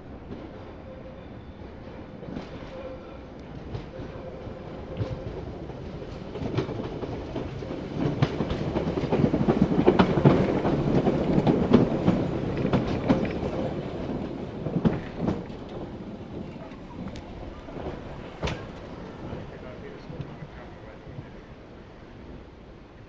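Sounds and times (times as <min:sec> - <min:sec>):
low train rumble: 0:00.0 - 0:23.0
train wheels clattering: 0:04.9 - 0:21.3.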